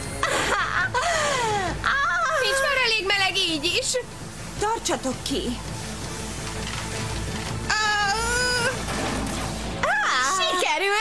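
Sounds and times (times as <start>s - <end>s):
girl's strained high cry: 7.7s - 8.8s.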